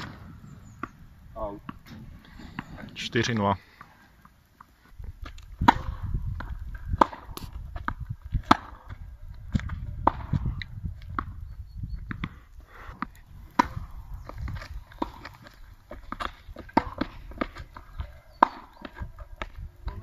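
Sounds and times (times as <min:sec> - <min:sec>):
low rumble: 0:00.0 - 0:03.2
tennis ball struck by rackets: 0:05.6 - 0:10.5, 0:13.0 - 0:15.3, 0:16.1 - 0:17.6, 0:18.3 - 0:19.6.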